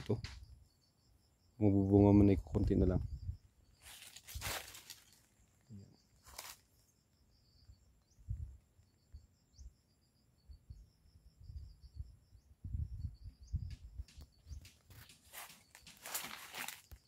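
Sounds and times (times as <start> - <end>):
footsteps on dry leaves: 3.8 - 5.3, 6.2 - 6.6, 15.0 - 17.0
dry leaves crackling: 3.8 - 5.4, 6.2 - 6.6, 15.3 - 17.0
bird chirping: 5.3 - 16.2.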